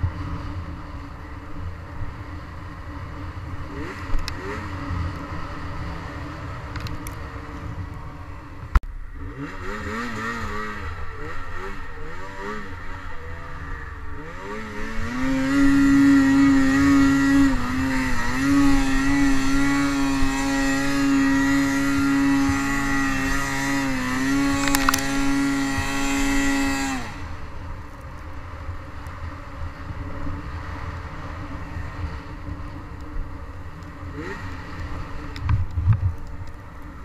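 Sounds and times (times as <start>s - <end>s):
snowmobile engine revving: 2.3s - 27.9s, 33.4s - 36.0s.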